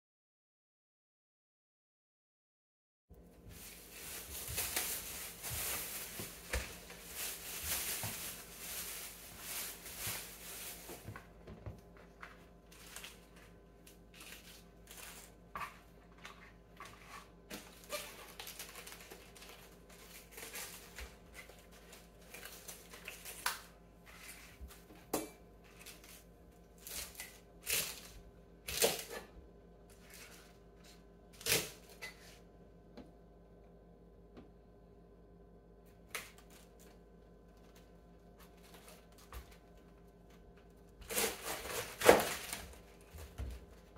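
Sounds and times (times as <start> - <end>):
cabbage leaves rustling: 3.5 - 11.3, 17.6 - 23.5, 41.0 - 43.9
knife cutting cabbage: 25.6 - 29.3, 29.9 - 32.4, 41.0 - 43.7.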